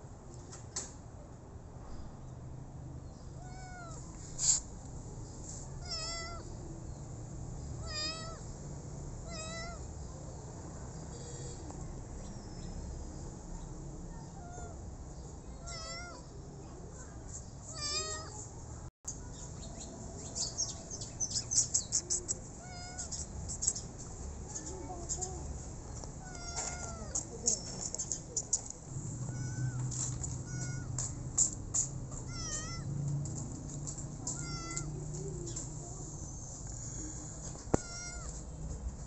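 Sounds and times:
kitten meowing: 3.4 - 4.0, 5.8 - 6.4, 7.8 - 8.4, 9.3 - 9.8, 15.6 - 16.3, 17.7 - 18.4, 22.2 - 23.8, 26.2 - 27.3, 29.2 - 31.0, 32.2 - 32.9, 34.2 - 35.0, 37.7 - 38.4.

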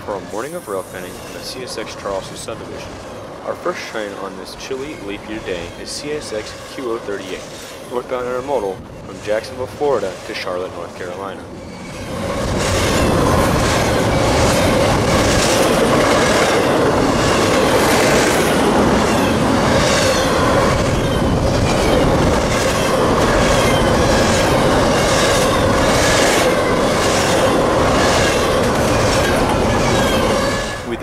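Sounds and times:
freight train wheels rumbling on rail: 0.0 - 31.0
wheels clickety-clack over rail joints: 0.0 - 31.0
faint high wheel squeal: 0.1 - 2.7, 3.8 - 12.3, 29.5 - 31.0.

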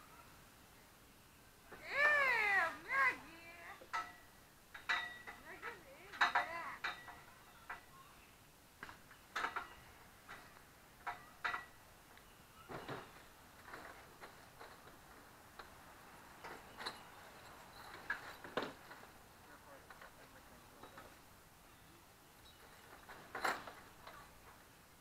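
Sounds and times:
metal frame clicks and knocks: 3.9 - 7.9, 8.8 - 11.8.

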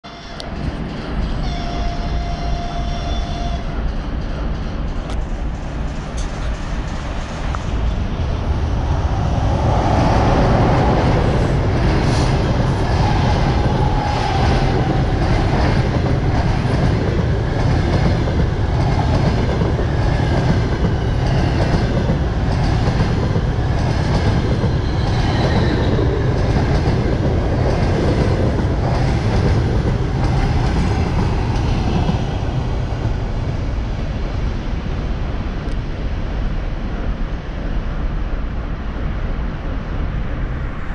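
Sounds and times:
passenger train passing: 0.0 - 40.9
wheels clickety-clack over rail joints: 3.8 - 33.8.

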